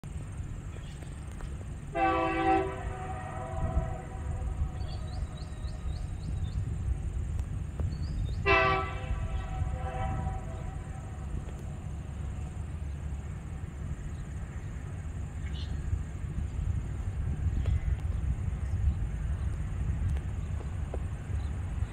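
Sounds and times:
steady low rumble: 0.0 - 21.9
locomotive air horn blasts: 1.9 - 5.3, 8.4 - 11.4.

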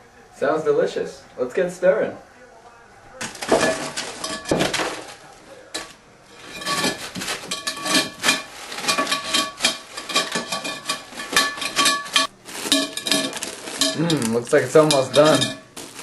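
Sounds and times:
metal spoon stirring in ceramic bowl: 5.8 - 16.0.

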